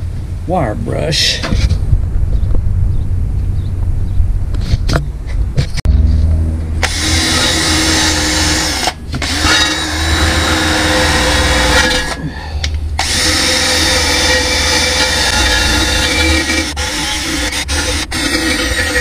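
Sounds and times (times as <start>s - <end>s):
drill with wire brush scrubbing metal: 6.8s - 19.0s.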